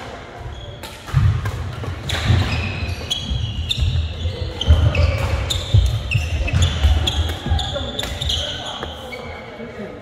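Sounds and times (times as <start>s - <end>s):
racket hitting shuttlecock: 0.7s - 4.0s
shoes squeaking on floor: 2.0s - 9.6s.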